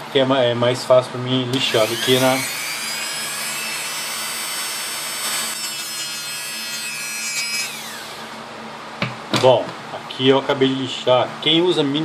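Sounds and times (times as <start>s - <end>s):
rotary tool sanding metal: 1.7s - 8.4s.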